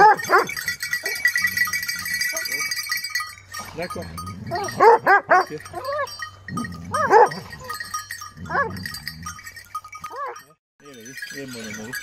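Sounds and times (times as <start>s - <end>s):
hounds yelping: 0.0s - 2.8s, 4.2s - 10.5s.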